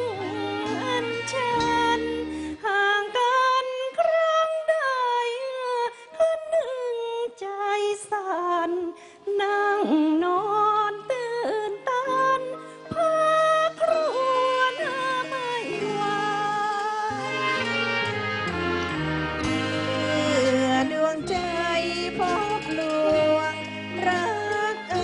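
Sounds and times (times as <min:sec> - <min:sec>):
woman singing with wavering notes: 0:00.0 - 0:25.0
classical ensemble playing: 0:14.1 - 0:25.0.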